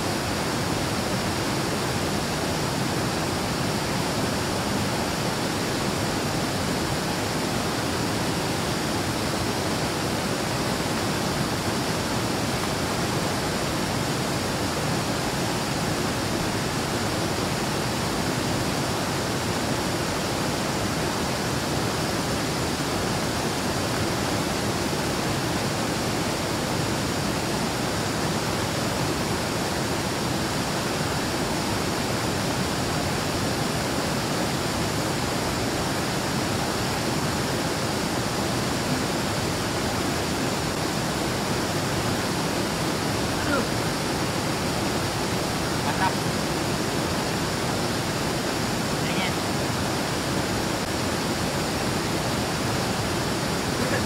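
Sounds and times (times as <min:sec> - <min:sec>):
waterfall rushing into a pool: 0:00.0 - 0:54.0.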